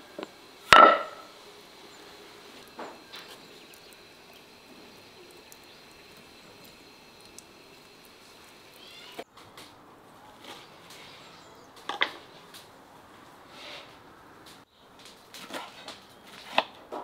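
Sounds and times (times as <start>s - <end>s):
birds chirping: 1.1s - 9.3s, 10.2s - 12.5s
faint dripping ticks: 2.6s - 9.1s.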